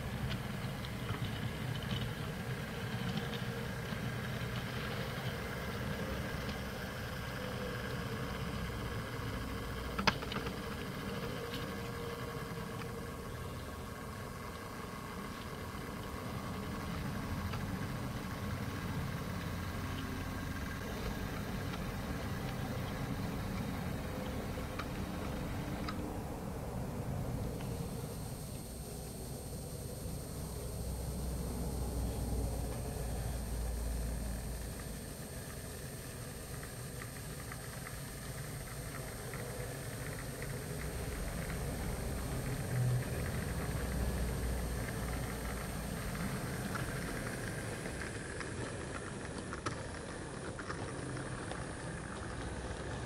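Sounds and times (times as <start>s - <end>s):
diesel engine running low: 0.0s - 53.0s
faint steady whine: 0.0s - 53.0s
model train humming: 0.0s - 53.0s
wheels clicking over rails: 0.0s - 53.0s.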